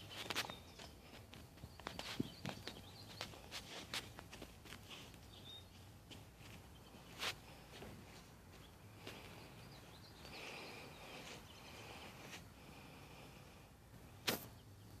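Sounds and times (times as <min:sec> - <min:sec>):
distant birds chirping: 0:00.0 - 0:15.0
sharp loud click: 0:14.2 - 0:14.6.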